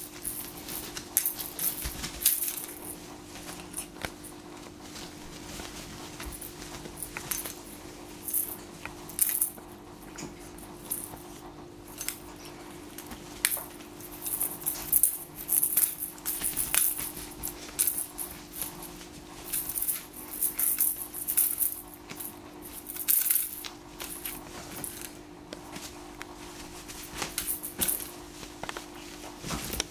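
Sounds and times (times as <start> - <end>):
cat toy beads rattling: 0.0 - 3.0, 6.2 - 9.6, 12.9 - 25.1
steady hum: 0.0 - 29.9.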